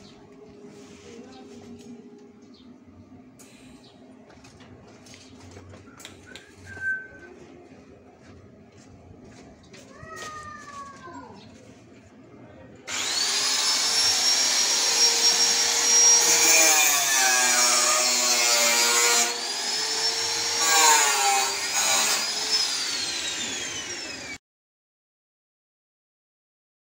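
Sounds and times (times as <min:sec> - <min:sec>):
electric power tool whining: 0:12.9 - 0:24.4.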